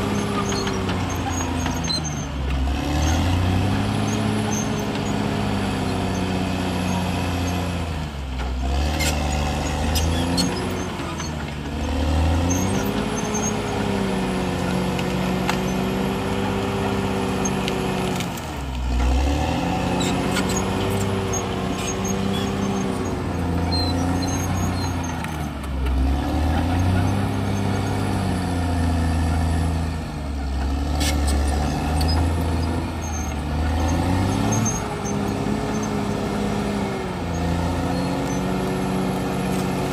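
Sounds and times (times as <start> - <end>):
dozer diesel engine under load: 0.0 - 39.9
sharp clicks and knocks: 14.9 - 15.7.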